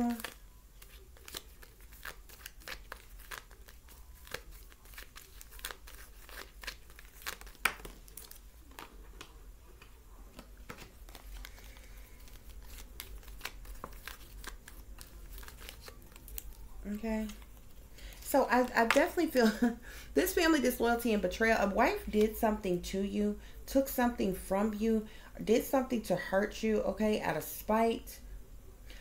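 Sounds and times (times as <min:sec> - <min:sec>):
cards being shuffled: 0:00.0 - 0:17.8.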